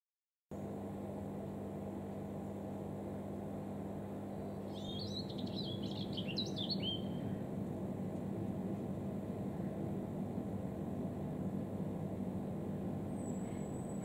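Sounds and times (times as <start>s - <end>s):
steady low hum: 0.5s - 14.0s
songbird warbling: 4.7s - 7.4s.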